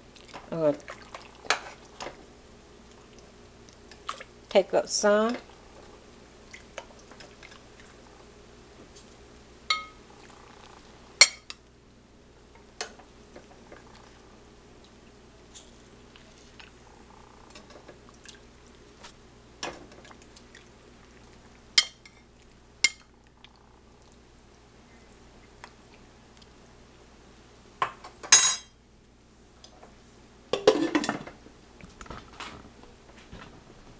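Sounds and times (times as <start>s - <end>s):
spoon clinking against pot and plate: 9.7s - 10.0s.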